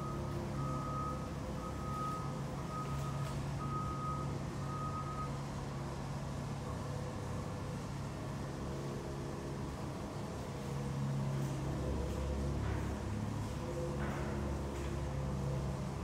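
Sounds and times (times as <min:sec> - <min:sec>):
electronic warning beeps: 0:00.0 - 0:05.4
conveyor motors humming: 0:00.0 - 0:16.0.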